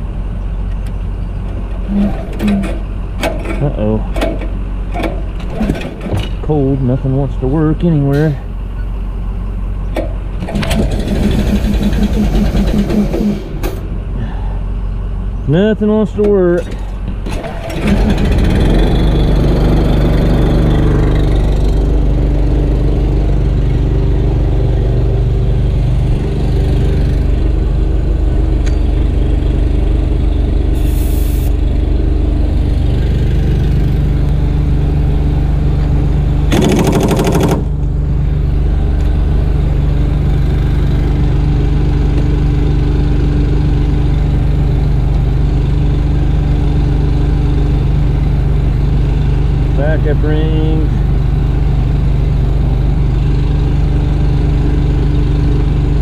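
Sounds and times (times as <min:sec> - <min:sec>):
small gas engine running: 0:10.4 - 0:14.6, 0:17.3 - 0:56.0
short air hisses: 0:30.8 - 0:31.5.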